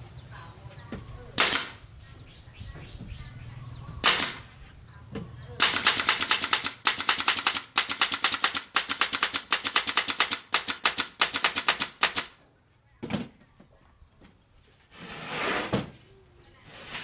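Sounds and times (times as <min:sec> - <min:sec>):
nail gun firing rapidly: 0:01.4 - 0:01.8, 0:04.0 - 0:04.5, 0:05.6 - 0:12.4.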